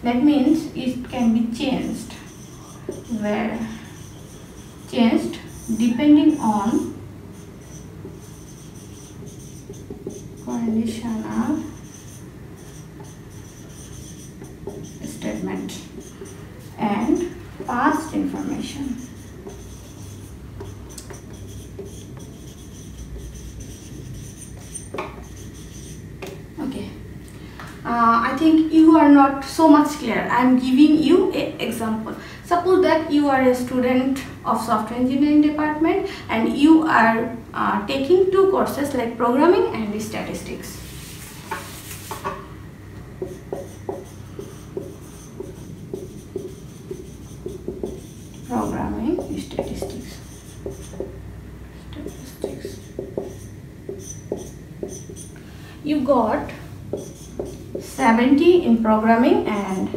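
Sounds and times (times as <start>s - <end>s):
low room hum: 0.0s - 59.9s
marker scratching on whiteboard: 0.5s - 26.4s, 40.3s - 42.4s, 43.2s - 51.2s, 51.8s - 55.4s, 56.0s - 59.9s.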